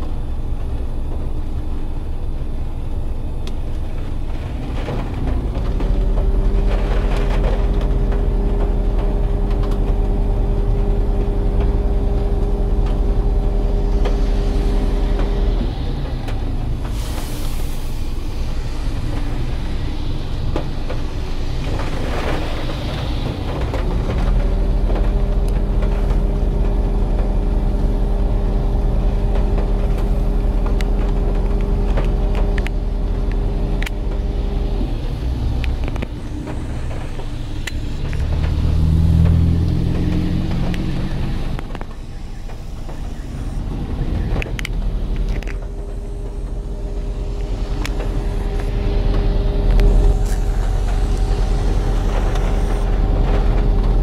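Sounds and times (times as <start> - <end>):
deeper hum: 0.0 - 54.0
steady mechanical hum: 0.0 - 54.0
strong wind buffeting a car: 0.0 - 54.0
rain tapping on glass: 4.6 - 16.4, 20.4 - 35.0, 35.7 - 43.2.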